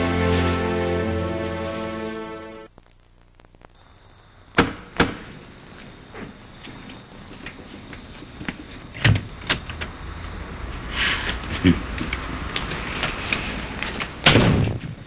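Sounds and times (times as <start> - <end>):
faint small ticks: 2.7 - 4.2.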